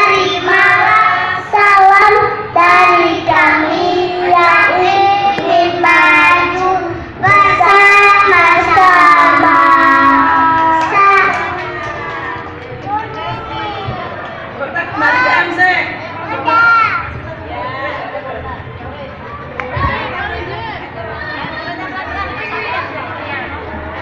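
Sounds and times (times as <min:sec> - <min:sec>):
young children singing: 0:00.0 - 0:12.2.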